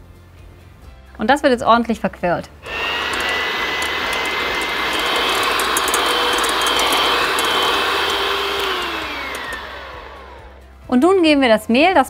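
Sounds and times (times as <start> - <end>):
electric hand mixer whining: 2.6 - 10.6
beaters ticking on glass bowl: 3.0 - 9.7.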